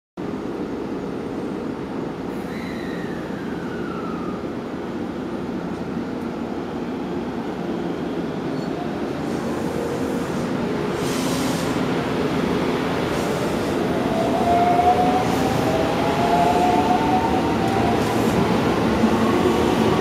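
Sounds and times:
train hiss: 2.3s - 4.3s, 9.1s - 12.2s, 12.9s - 14.4s.

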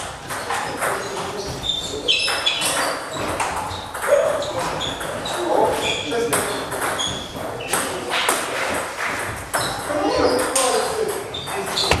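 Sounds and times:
table tennis balls clicking: 6.3s - 12.0s.

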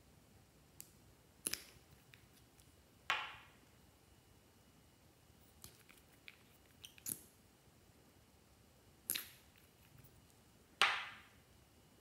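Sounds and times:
plastic cap clicks and snaps: 0.8s - 3.4s, 5.6s - 7.3s, 9.0s - 9.7s.

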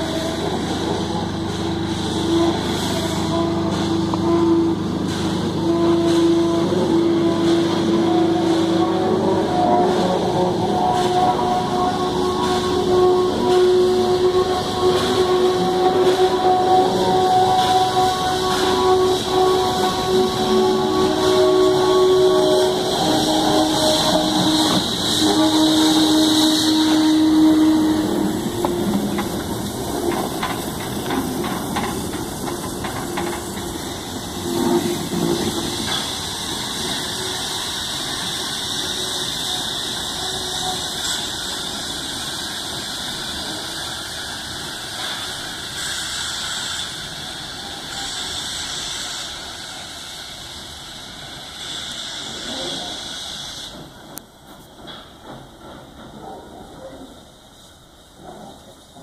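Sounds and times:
steam locomotive whistle: 0.0s - 31.9s, 32.8s - 53.8s
steam hiss: 0.0s - 59.0s
wagons clicking and clanking: 28.6s - 33.8s.

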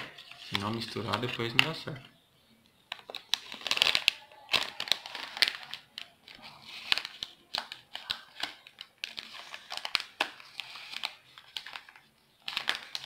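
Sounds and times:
plastic sachet crinkling: 2.9s - 13.0s.

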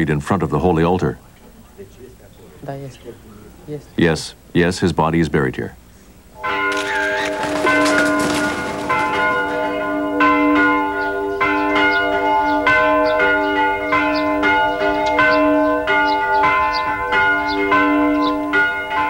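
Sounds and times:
church bells ringing: 6.4s - 19.0s.

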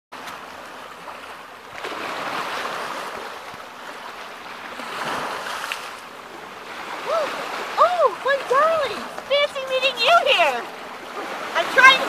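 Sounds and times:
small waves on pebbly shore: 0.2s - 12.0s.

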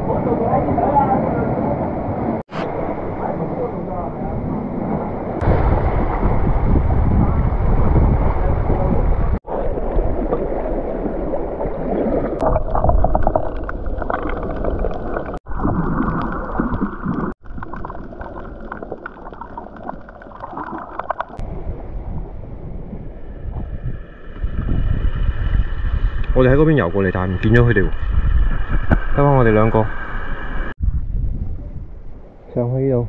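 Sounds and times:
wind rumbling on microphone: 0.0s - 19.9s, 21.2s - 33.0s
water sloshing and splashing: 9.4s - 21.5s.

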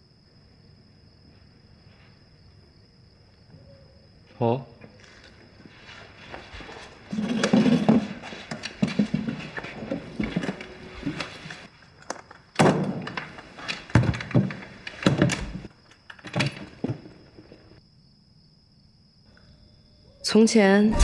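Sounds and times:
chairs thudding on wood: 7.1s - 11.7s, 12.6s - 15.7s.

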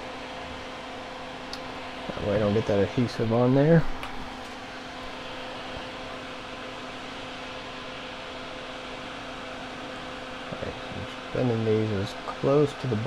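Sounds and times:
faint hum: 0.0s - 13.0s
fan whirring: 0.0s - 13.0s.

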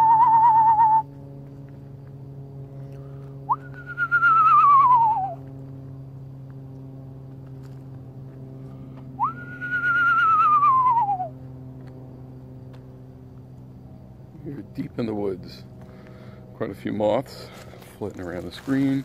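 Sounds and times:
whistled owl call imitation: 0.0s - 1.1s, 3.4s - 5.5s, 9.2s - 11.4s
faint steady hum: 0.0s - 19.0s.

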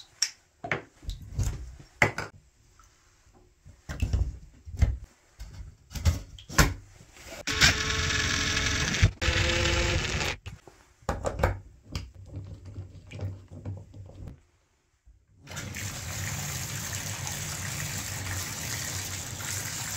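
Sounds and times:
loud buzzing: 7.5s - 10.4s
water running from bathtub spout: 15.4s - 19.9s.

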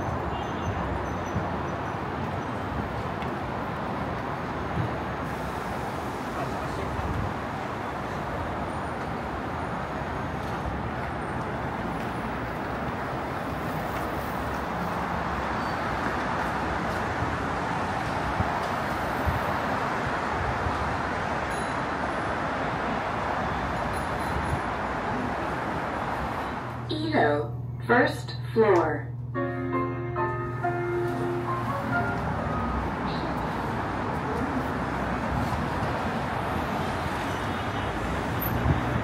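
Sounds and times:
road traffic: 0.0s - 39.0s.

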